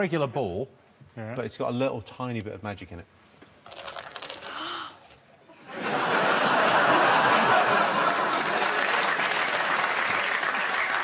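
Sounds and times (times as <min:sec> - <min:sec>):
audience laughing softly: 0:05.5 - 0:11.0
loud applause: 0:05.7 - 0:11.0.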